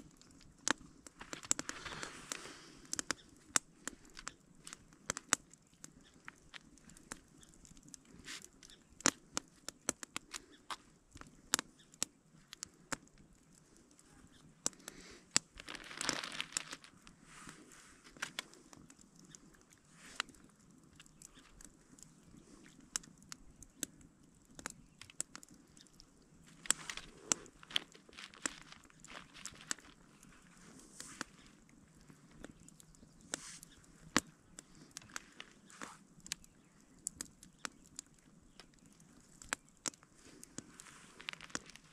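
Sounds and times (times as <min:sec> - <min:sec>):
campfire crackling and popping: 0:00.0 - 0:41.9
plastic bag crinkling: 0:01.2 - 0:02.8, 0:15.5 - 0:17.2, 0:26.4 - 0:31.6, 0:40.2 - 0:41.9.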